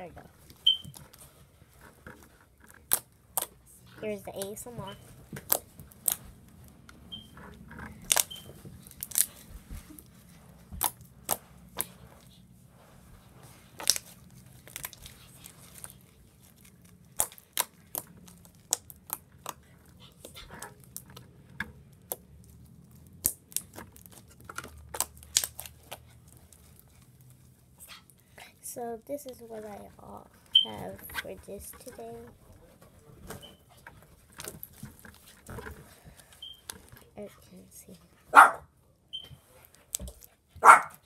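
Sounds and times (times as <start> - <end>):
low background hum: 0.0 - 41.0
slime squished by hand: 7.8 - 12.4, 21.8 - 27.5.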